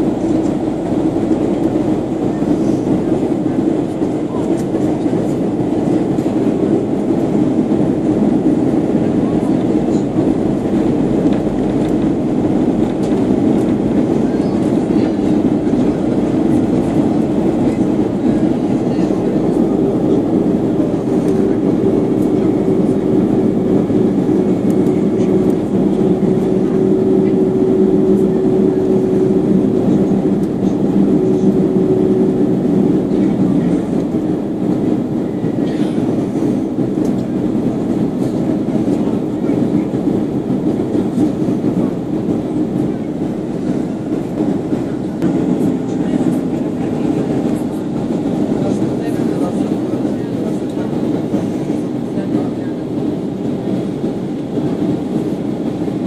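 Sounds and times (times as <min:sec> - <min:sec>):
airplane cabin rumble: 0:00.0 - 0:56.0.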